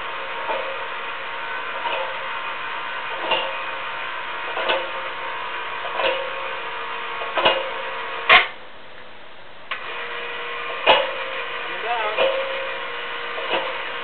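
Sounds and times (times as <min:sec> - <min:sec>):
ladder hoist whirring: 0:00.0 - 0:08.6, 0:09.7 - 0:14.0
sharp clunk: 0:05.9 - 0:06.3, 0:07.3 - 0:07.7, 0:08.3 - 0:08.6, 0:10.8 - 0:11.2
hoist clicking: 0:07.2 - 0:08.6, 0:10.7 - 0:14.0.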